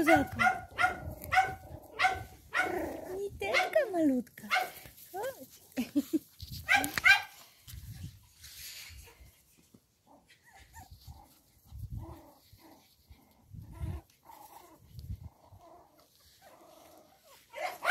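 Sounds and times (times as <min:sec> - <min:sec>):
dog yip: 0:00.0 - 0:02.7, 0:06.7 - 0:07.4, 0:17.5 - 0:17.9.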